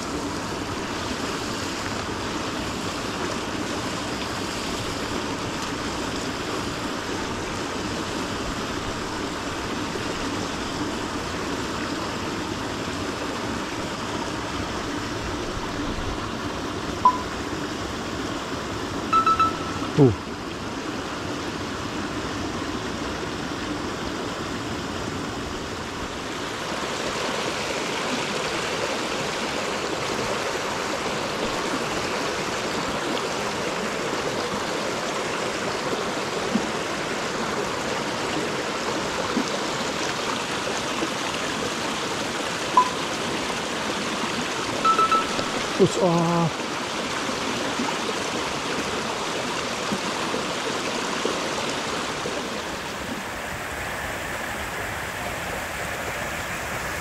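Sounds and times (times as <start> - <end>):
creek rushing over rocks: 0.0 - 57.0
short high tones: 17.0 - 17.5, 19.1 - 20.2, 42.8 - 43.1, 44.8 - 46.5.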